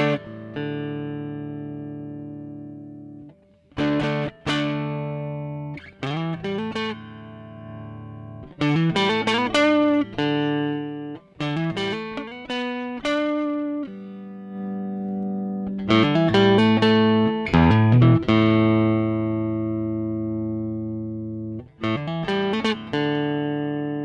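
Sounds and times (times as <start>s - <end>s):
overdriven electric guitar: 0.0s - 24.0s.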